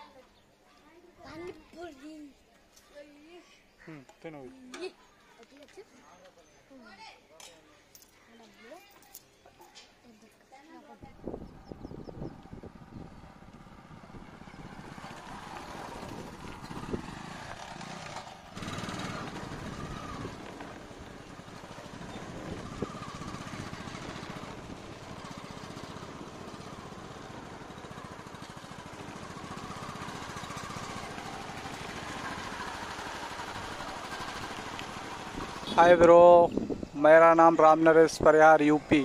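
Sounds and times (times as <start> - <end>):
motorcycle engine running: 11.0 - 36.9.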